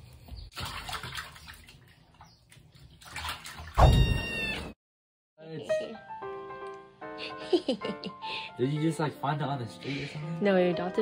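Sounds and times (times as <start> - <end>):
kitten meowing: 3.8 - 4.8
music: 5.4 - 11.0.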